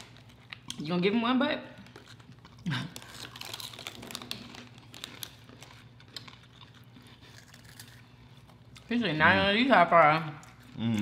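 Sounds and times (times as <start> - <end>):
chips crunching while chewed: 1.9 - 8.9.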